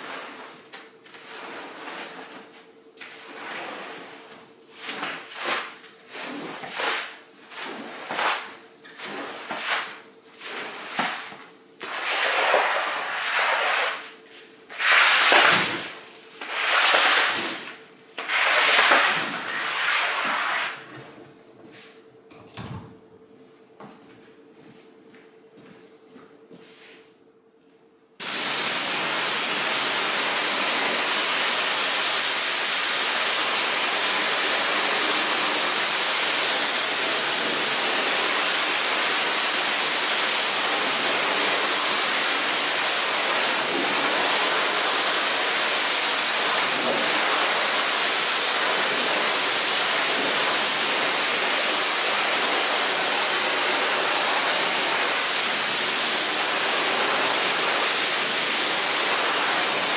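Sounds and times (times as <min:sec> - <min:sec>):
water spraying onto carpet: 0:14.7 - 0:17.6, 0:28.2 - 0:59.9.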